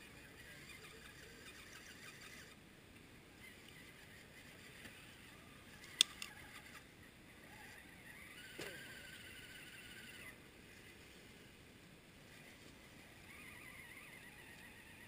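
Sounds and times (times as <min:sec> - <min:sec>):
small electric winch motor whine: 0:00.0 - 0:02.6, 0:03.4 - 0:11.0, 0:12.3 - 0:15.0
sharp clicks: 0:05.8 - 0:06.4.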